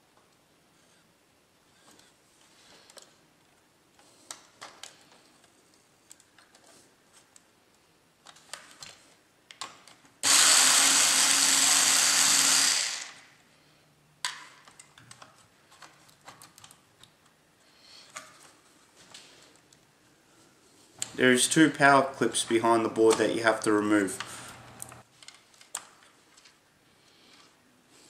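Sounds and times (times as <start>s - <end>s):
hands handling laptop parts: 1.8s - 10.2s, 14.2s - 17.4s, 24.2s - 26.6s
electric screwdriver whirring: 10.2s - 13.2s.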